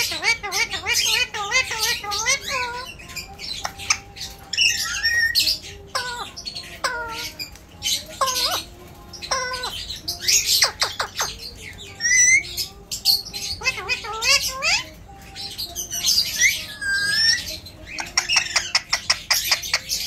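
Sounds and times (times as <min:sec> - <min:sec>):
parakeet squawking: 0:00.0 - 0:20.0.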